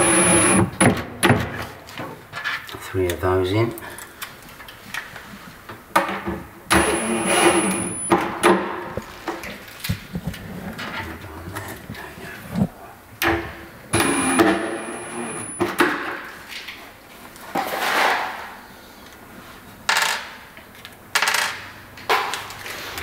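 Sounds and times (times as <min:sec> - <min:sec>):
cordless drill driving screws: 0:00.0 - 0:00.7, 0:06.7 - 0:08.1, 0:14.0 - 0:15.6.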